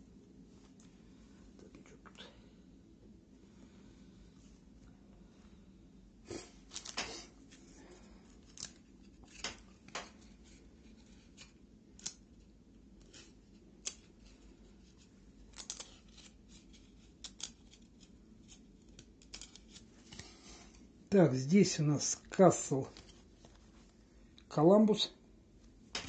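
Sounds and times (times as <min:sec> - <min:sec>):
cards being handled: 0:06.4 - 0:20.8, 0:22.6 - 0:24.0.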